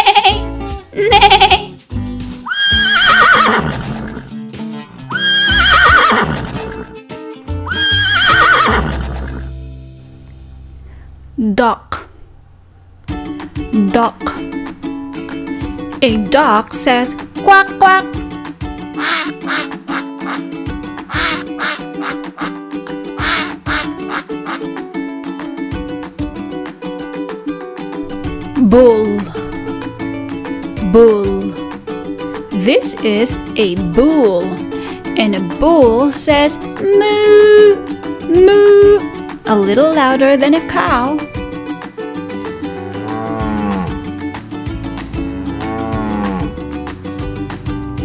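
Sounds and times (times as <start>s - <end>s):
background music: 0.0s - 48.0s
horse whinnying: 2.4s - 4.3s, 5.1s - 6.9s, 7.6s - 9.5s, 19.0s - 20.4s, 21.1s - 22.5s, 23.2s - 24.2s
duck quacking: 19.0s - 20.5s, 21.1s - 22.6s, 23.2s - 24.8s.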